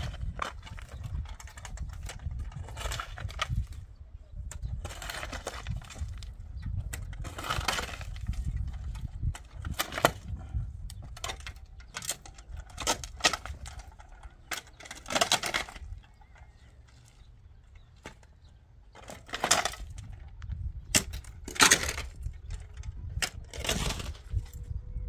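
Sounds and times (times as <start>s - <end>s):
shovel scraping stony dirt: 0.0s - 3.8s, 4.5s - 16.0s, 20.9s - 24.7s.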